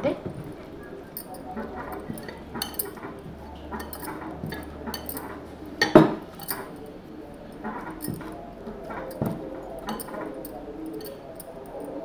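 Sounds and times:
light clinks on glass bowl: 1.0 - 3.0, 3.8 - 6.8, 7.9 - 8.4, 9.0 - 12.0.

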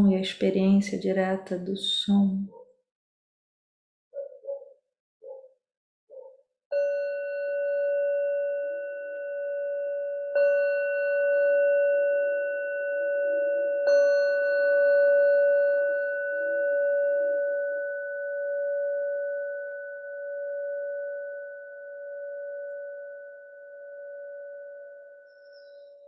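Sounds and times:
singing bowl ringing: 6.7 - 26.0.

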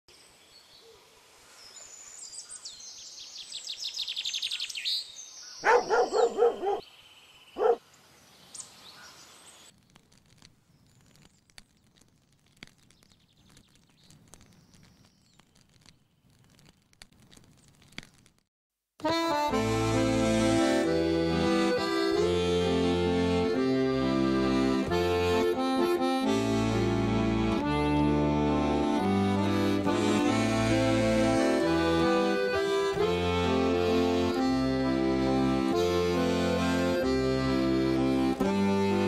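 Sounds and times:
songbird trilling: 2.3 - 7.8
dog barking: 5.6 - 6.8, 7.6 - 7.8.

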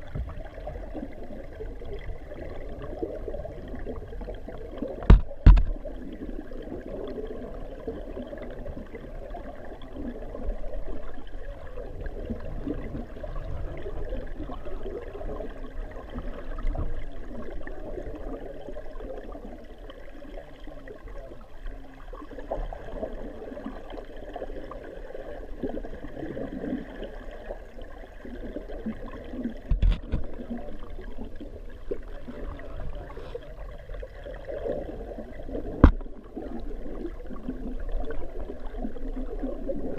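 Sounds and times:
muffled underwater churning: 0.0 - 39.9
sharp knocks: 5.0 - 5.7.

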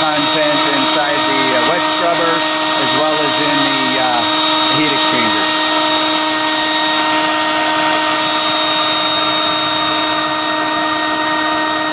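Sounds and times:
blower motor whine: 0.0 - 11.9.

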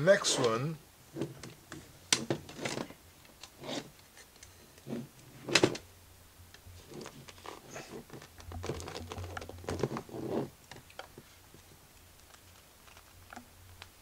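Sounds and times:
plastic film rustling: 6.8 - 10.2.

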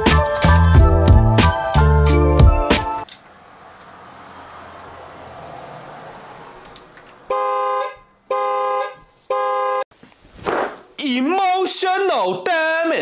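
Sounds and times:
car horn honking: 7.2 - 9.9.

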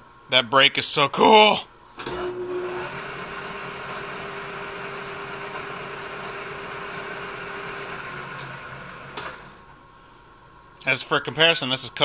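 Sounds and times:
lathe mechanical hum: 2.0 - 9.6
lathe whine: 2.1 - 9.4.

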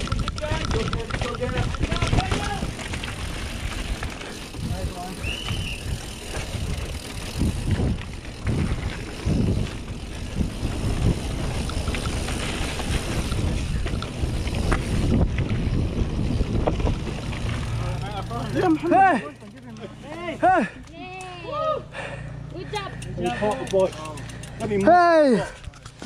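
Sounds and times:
wind buffeting microphone: 0.0 - 18.6
tyres rumbling on rock: 0.0 - 19.0
bike rattling over bumps: 0.0 - 21.4, 22.0 - 26.0.

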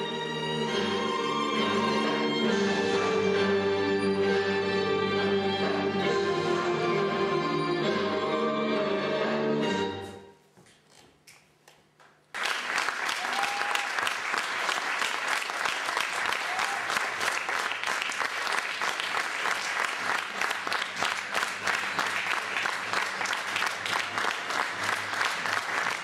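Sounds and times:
audience applauding: 12.3 - 26.0.

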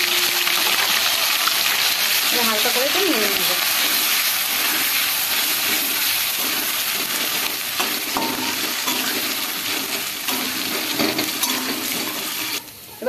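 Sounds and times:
pastes sizzling in hot oil: 0.0 - 13.0.

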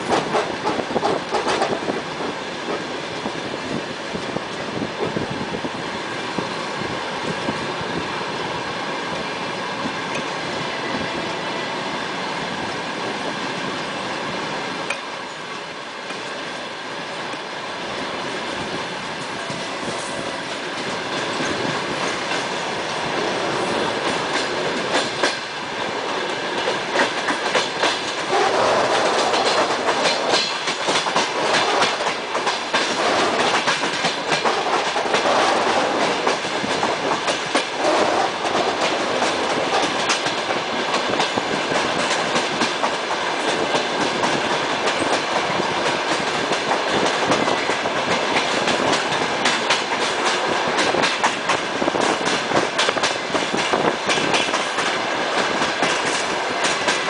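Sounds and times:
train wheels clattering over rail joints: 0.0 - 3.3, 19.2 - 57.0.

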